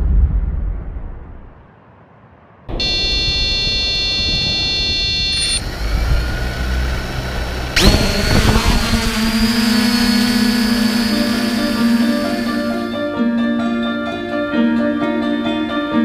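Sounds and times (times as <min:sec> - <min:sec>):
drone propellers whining: 0:02.7 - 0:13.1.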